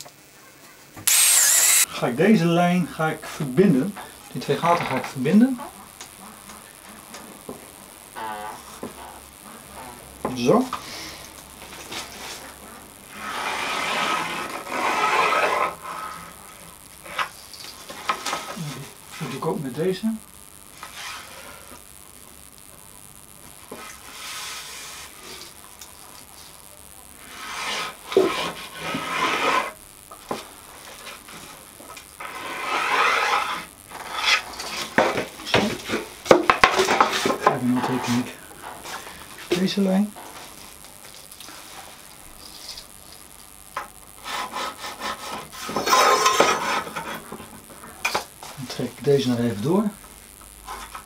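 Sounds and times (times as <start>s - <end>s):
pencil scratching along straightedge: 13.2s - 16.1s, 27.3s - 29.8s, 32.2s - 34.4s.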